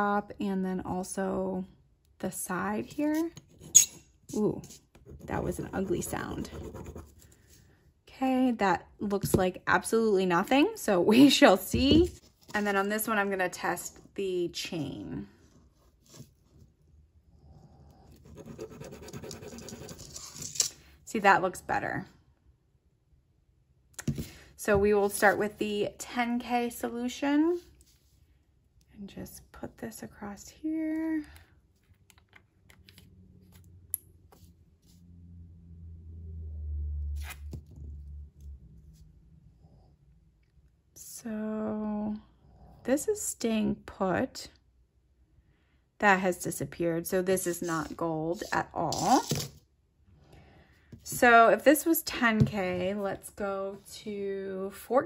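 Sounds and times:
chain scratching on stone: 18.4s - 20.8s, 47.6s - 49.6s.

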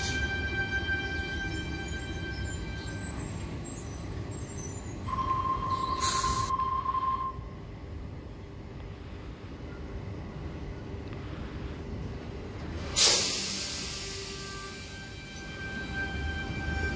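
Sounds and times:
high brake squeal: 0.0s - 7.4s, 13.0s - 16.9s
train rumble: 0.0s - 16.9s
air hiss from brakes: 6.0s - 6.5s, 12.7s - 15.6s.

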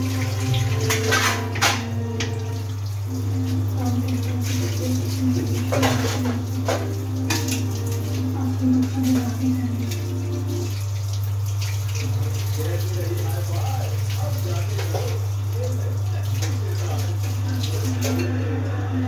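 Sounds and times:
kitchen utensils clinking: 0.0s - 2.6s, 3.8s - 10.6s, 14.2s - 15.3s, 16.3s - 18.5s.

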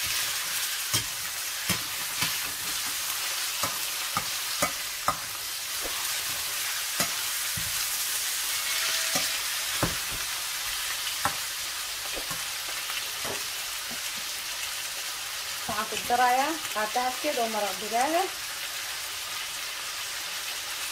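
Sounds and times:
spatula knocking and scraping pan: 0.0s - 7.9s, 8.5s - 10.4s, 11.2s - 11.5s
chicken and onion sizzling in pan: 0.0s - 20.9s.

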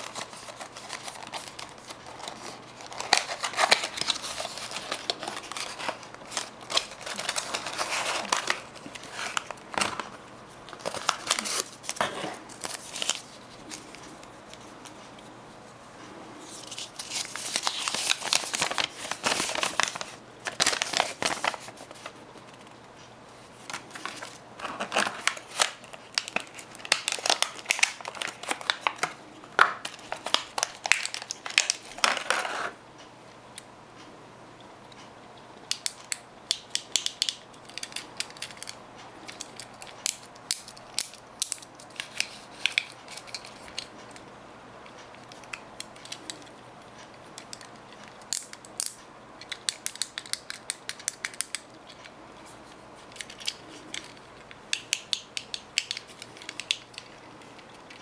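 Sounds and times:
paper packaging rustling: 0.0s - 15.0s, 16.4s - 22.8s, 23.5s - 32.8s.

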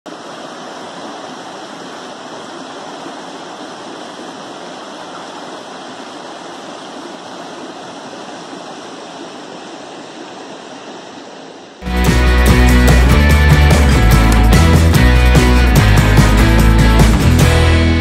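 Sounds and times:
stream rushing over boulders: 0.1s - 11.8s.

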